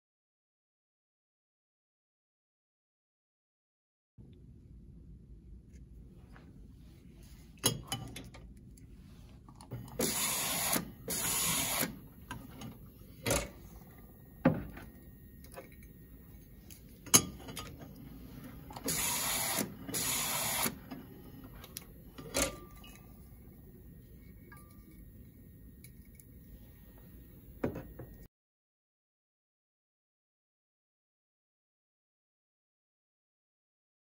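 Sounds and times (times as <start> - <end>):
label applicator running: 9.7 - 15.8, 16.6 - 22.6.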